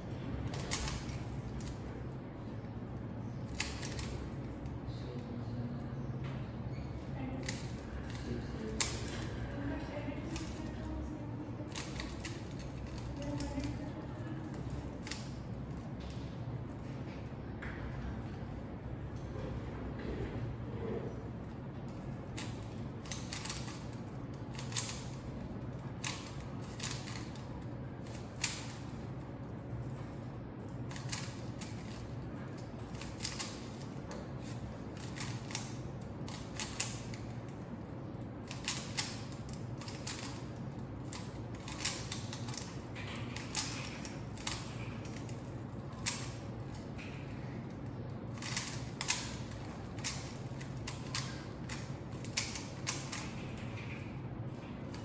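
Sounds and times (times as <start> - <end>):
steady low hum: 0.0 - 55.0
puzzle cube clicking: 3.5 - 4.3, 11.7 - 13.8, 22.4 - 25.3, 26.0 - 27.4, 30.9 - 32.1, 38.5 - 40.5, 41.1 - 45.3.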